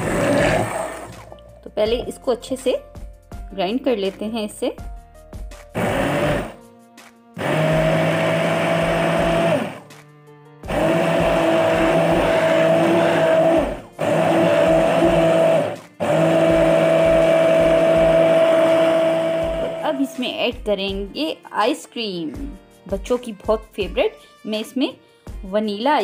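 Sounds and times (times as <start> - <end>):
immersion blender motor hum: 0.0 - 1.4, 5.7 - 6.6, 7.4 - 9.9, 10.6 - 20.2.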